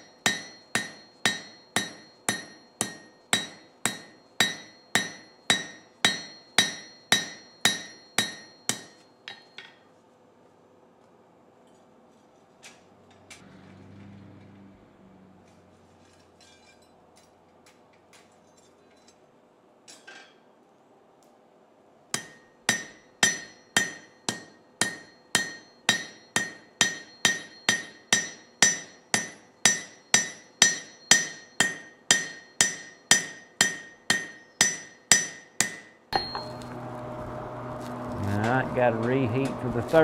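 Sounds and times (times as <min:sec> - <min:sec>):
hammer ringing on anvil: 0:00.0 - 0:09.8, 0:22.2 - 0:36.7.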